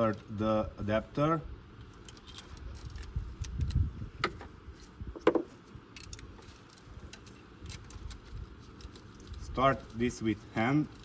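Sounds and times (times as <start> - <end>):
metal clicks and clinks: 2.0 - 2.6, 5.9 - 6.3.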